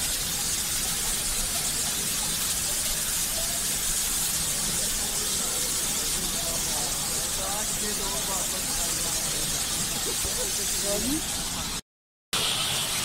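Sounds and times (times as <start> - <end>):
steam locomotive venting steam: 0.0 - 11.8, 12.4 - 13.0
faint voices: 1.1 - 11.3.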